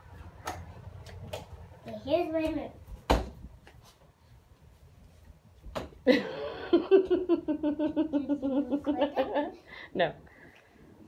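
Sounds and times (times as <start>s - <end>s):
girl giggling: 6.0s - 9.8s.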